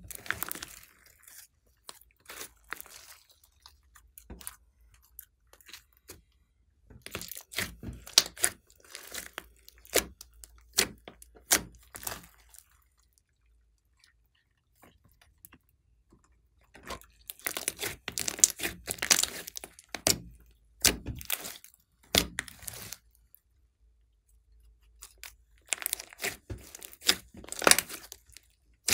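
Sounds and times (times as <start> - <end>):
slime crackling and popping: 0.0 - 4.6, 7.0 - 12.6, 17.1 - 23.0, 25.1 - 28.9.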